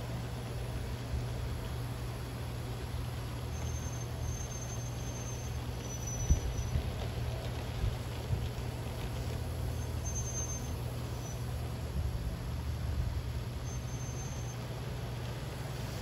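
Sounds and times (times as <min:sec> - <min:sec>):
model train rumbling on track: 0:00.0 - 0:16.0
faint high squeaks: 0:03.5 - 0:06.8, 0:09.7 - 0:11.5, 0:13.6 - 0:14.7.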